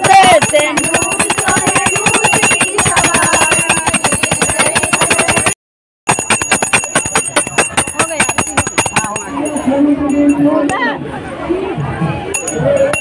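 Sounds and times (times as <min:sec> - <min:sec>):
brass hand bell ringing rapidly: 0:00.0 - 0:05.5, 0:06.1 - 0:10.4.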